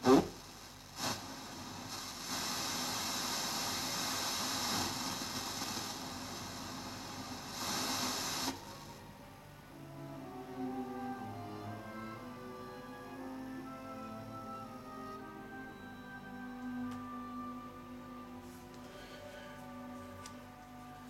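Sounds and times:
radio static hiss: 0.0s - 9.1s.

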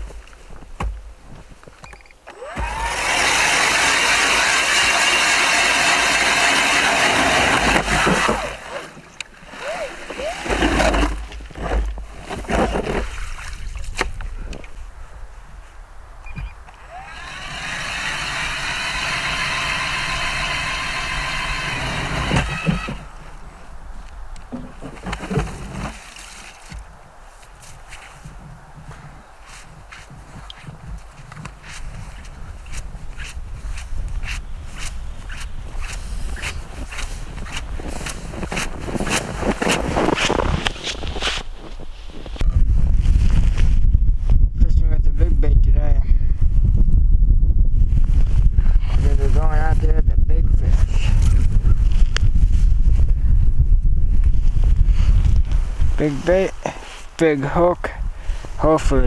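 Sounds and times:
ice auger grinding through ice: 2.3s - 13.4s, 16.8s - 23.2s, 24.8s - 26.6s, 31.6s - 41.4s
footsteps crunching in snow: 24.9s - 43.8s.

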